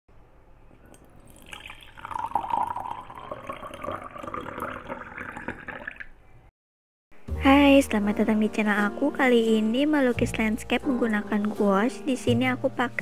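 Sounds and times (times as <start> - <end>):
water pouring into glass jar: 0.9 - 6.2.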